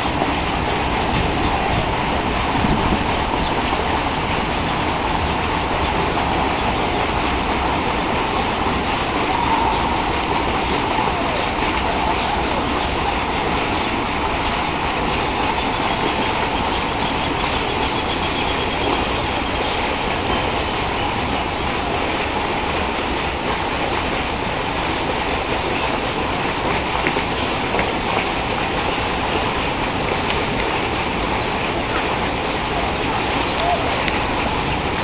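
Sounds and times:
fountain water splashing into lake: 0.0s - 35.0s.

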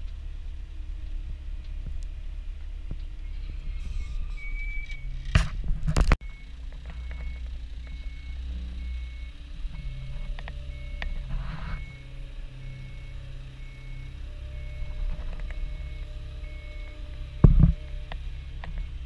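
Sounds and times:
diesel engine running: 0.0s - 19.0s
high warning beeps: 3.3s - 5.2s, 6.2s - 19.0s
loud thump: 17.4s - 17.8s.

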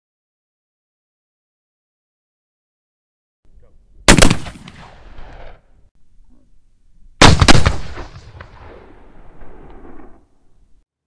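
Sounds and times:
rifle shot: 4.1s - 5.6s, 7.2s - 10.4s.

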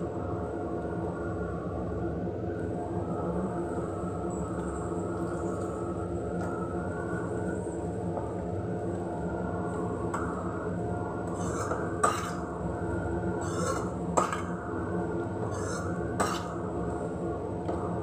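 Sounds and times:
steady low hum: 0.0s - 18.0s
spoon scraping frying pan: 11.4s - 12.4s, 13.4s - 13.9s.

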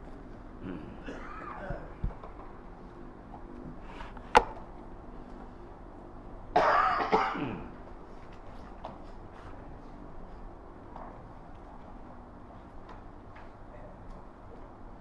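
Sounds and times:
man coughing and clearing throat: 0.7s - 2.0s, 6.5s - 7.8s.

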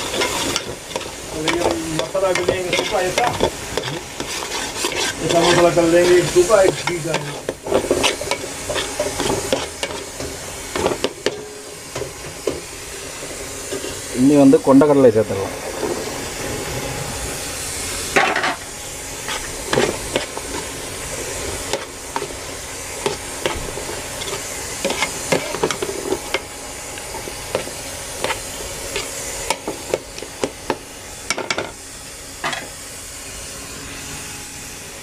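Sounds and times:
spoon scraping metal pot: 0.0s - 10.2s
food sizzling: 0.0s - 35.0s.

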